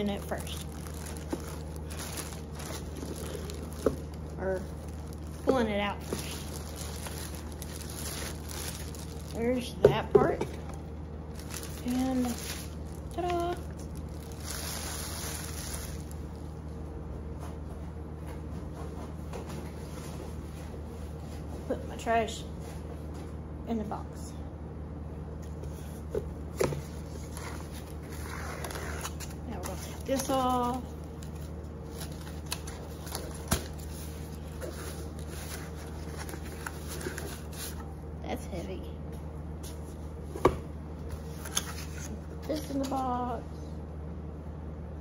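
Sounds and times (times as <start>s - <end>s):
plastic bag crinkling: 0.0s - 9.8s, 10.6s - 16.5s, 27.1s - 37.8s
low hum: 0.0s - 45.0s
cardboard rustling and scraping: 0.3s - 9.6s, 25.6s - 37.9s.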